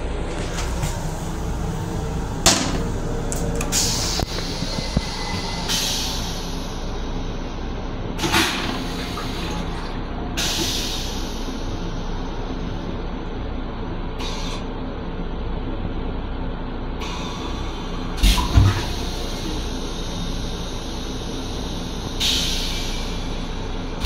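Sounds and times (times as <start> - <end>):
toilet flushing whoosh: 0.0 - 12.3, 17.3 - 24.0
railcar rumble: 0.0 - 24.0.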